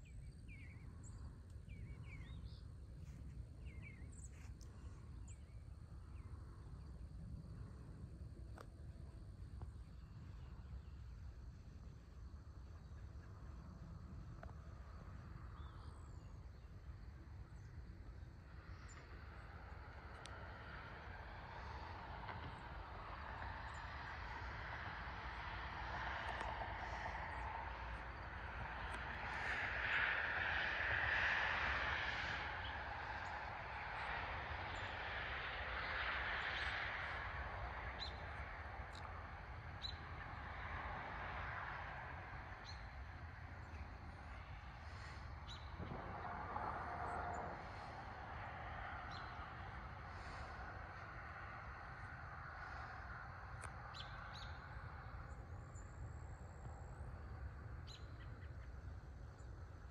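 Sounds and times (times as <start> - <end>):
low rumble: 0.0 - 59.8
distant vehicle rushing: 14.0 - 59.9.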